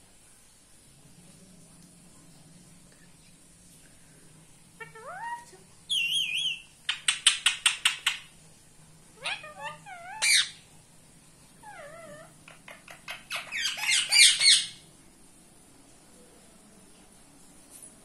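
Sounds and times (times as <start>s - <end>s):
parakeets calling: 9.2s - 10.6s, 11.6s - 14.8s
parakeets screeching: 9.2s - 10.6s, 11.6s - 14.8s.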